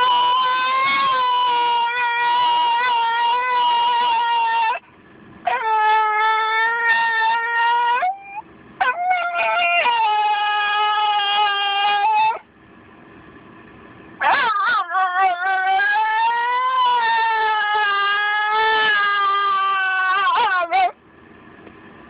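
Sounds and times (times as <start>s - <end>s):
dog howling: 0.0s - 4.8s, 5.4s - 12.5s, 14.2s - 21.0s.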